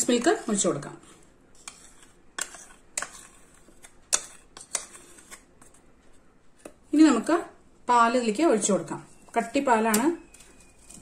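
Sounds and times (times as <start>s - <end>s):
steel spoon scraping a bowl: 0.0s - 5.8s, 10.3s - 11.0s.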